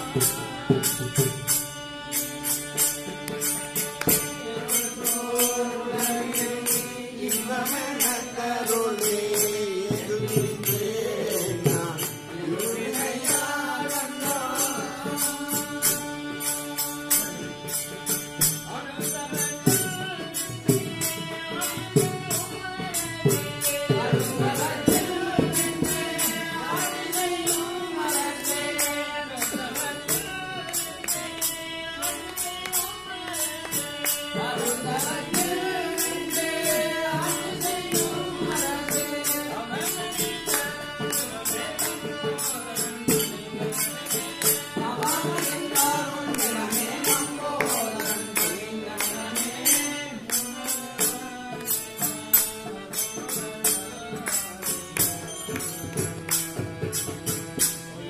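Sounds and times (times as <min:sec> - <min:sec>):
jingling metal percussion: 0:00.0 - 0:58.0
group chanting: 0:34.4 - 0:43.4, 0:44.2 - 0:51.1.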